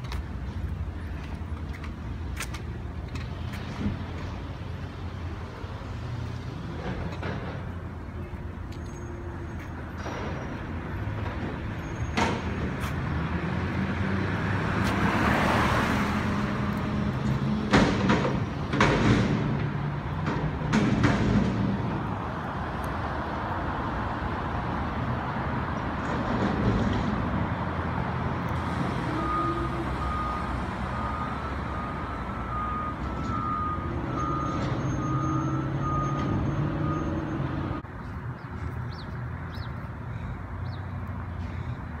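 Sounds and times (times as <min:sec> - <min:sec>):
diesel engine revving: 0:12.2 - 0:22.4, 0:26.0 - 0:37.8
loud metal bangs: 0:17.6 - 0:22.1.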